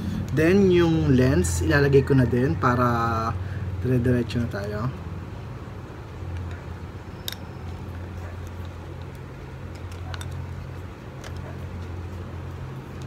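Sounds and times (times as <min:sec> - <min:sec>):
camera and lens clicks: 0:07.2 - 0:13.0.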